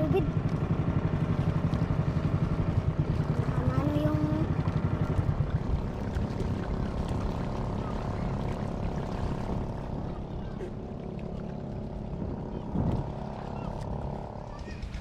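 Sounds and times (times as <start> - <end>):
boat engine pulsing: 0.0 - 15.0.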